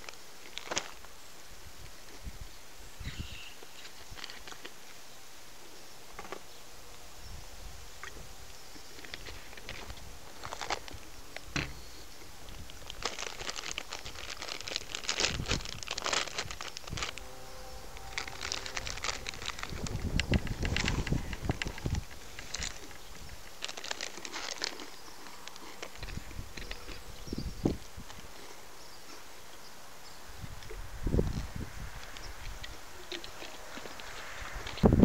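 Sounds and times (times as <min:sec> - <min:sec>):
crunching and crackling: 0:00.0 - 0:01.2, 0:08.8 - 0:29.3.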